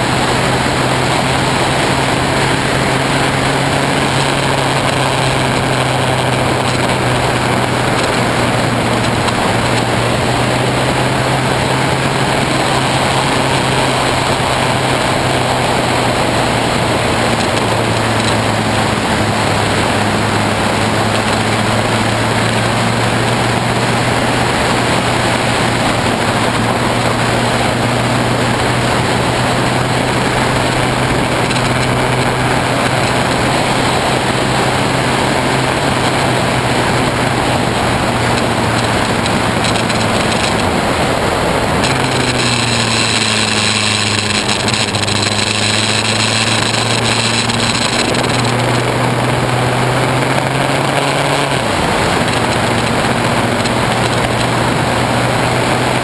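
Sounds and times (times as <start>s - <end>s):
motorcycle engine cruising: 0.0s - 56.0s
wind and road noise: 0.0s - 56.0s.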